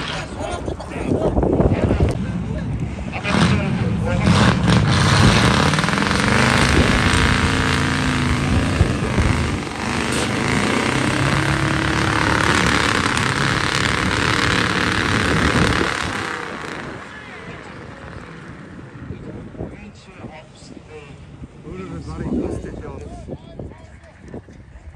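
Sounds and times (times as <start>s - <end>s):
truck engine revving: 0.0s - 0.8s, 1.4s - 19.6s.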